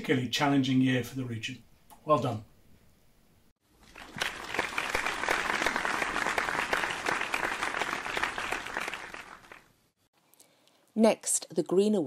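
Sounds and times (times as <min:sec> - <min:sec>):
audience applause: 0:03.8 - 0:09.7.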